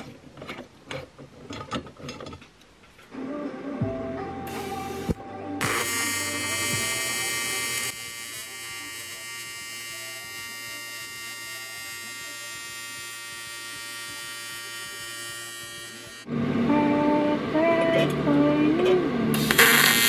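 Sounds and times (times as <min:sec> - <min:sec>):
welding arc buzzing: 0:04.5 - 0:16.3, 0:19.4 - 0:20.0.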